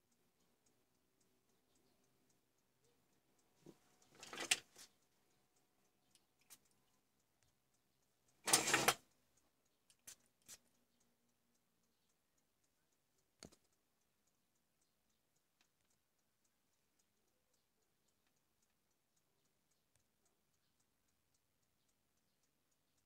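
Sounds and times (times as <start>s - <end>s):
faint steady ticking: 0.0s - 23.0s
light plastic clicks: 13.4s - 13.8s.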